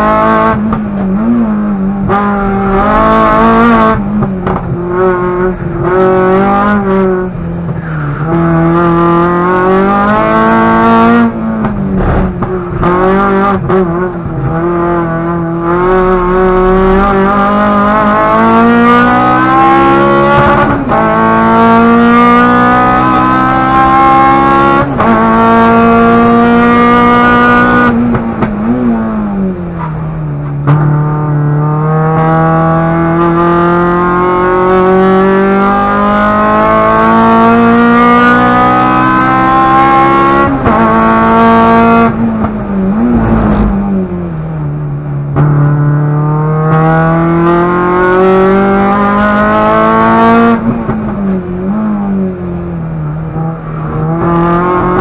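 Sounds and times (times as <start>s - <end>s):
race car engine accelerating: 0.0s - 55.0s
engine throttle blips: 0.6s - 8.4s, 41.4s - 45.7s.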